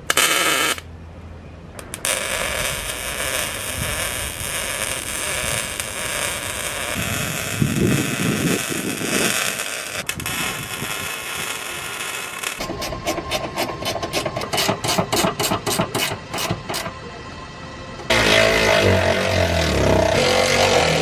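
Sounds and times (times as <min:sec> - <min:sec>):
arc welding crackling hiss: 0:00.0 - 0:00.8, 0:02.0 - 0:12.7.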